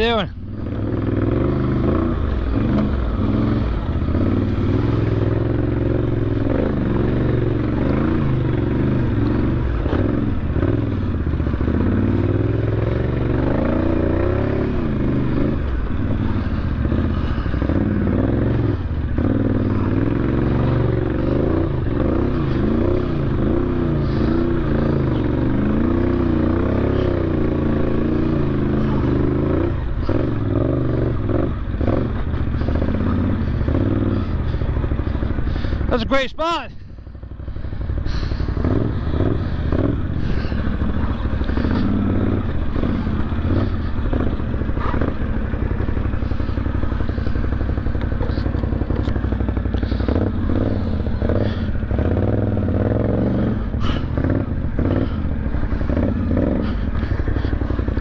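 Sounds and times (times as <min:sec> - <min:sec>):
atv engine revving: 0:00.0 - 0:58.0
vehicle clattering over rough ground: 0:00.0 - 0:58.0.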